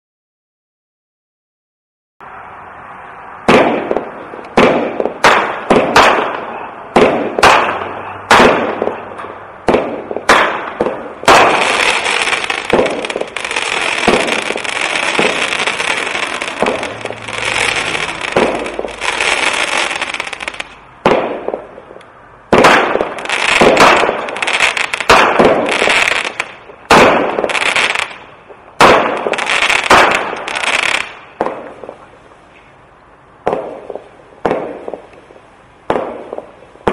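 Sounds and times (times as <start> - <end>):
firework crackling: 3.0 - 32.4, 33.4 - 36.9
firework shots launching: 3.4 - 32.0, 33.4 - 35.1, 35.8 - 36.9
firework fuse hiss: 11.2 - 20.8.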